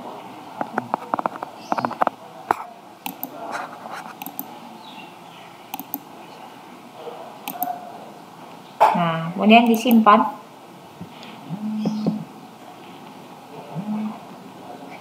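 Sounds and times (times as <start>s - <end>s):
computer mouse clicking: 3.0s - 3.4s, 4.1s - 4.5s, 5.7s - 6.1s, 7.4s - 7.8s, 9.6s - 10.0s.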